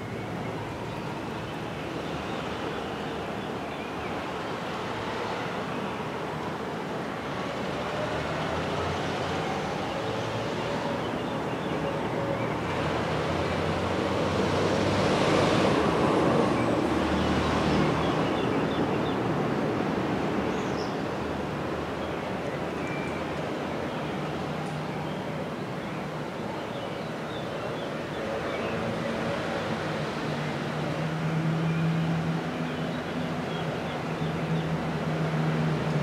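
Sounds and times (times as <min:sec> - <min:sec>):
traffic: 0:00.0 - 0:36.0
passing vehicle rumble: 0:28.1 - 0:36.0.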